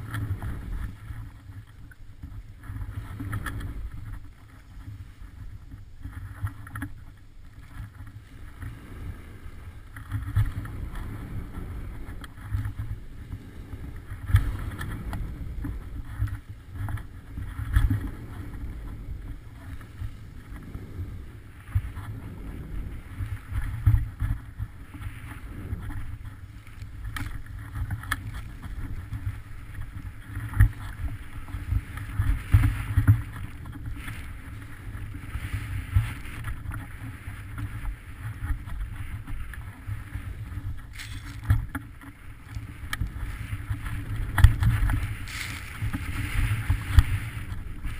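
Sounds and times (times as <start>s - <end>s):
skis scraping over snow: 0.0s - 47.9s
wind buffeting microphone: 0.0s - 47.9s.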